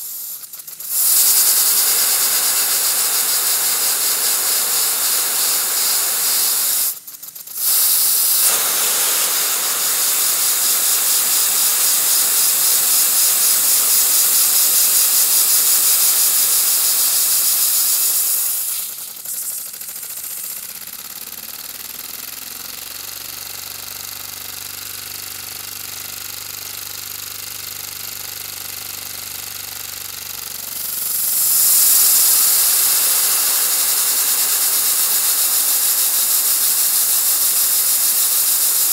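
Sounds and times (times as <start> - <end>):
vacuum cleaner suction hiss: 0.0 - 20.8, 30.7 - 38.9.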